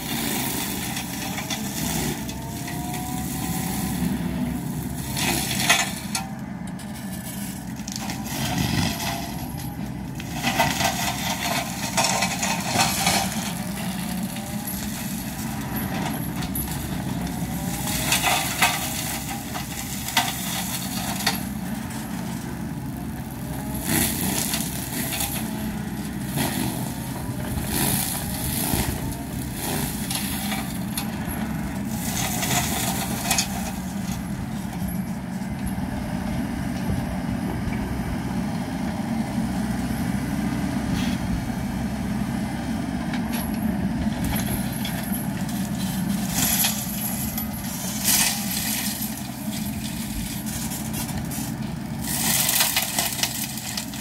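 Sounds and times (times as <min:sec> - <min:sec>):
mini excavator engine running: 0:00.0 - 0:54.0
mulcher grinding brush: 0:00.0 - 0:54.0.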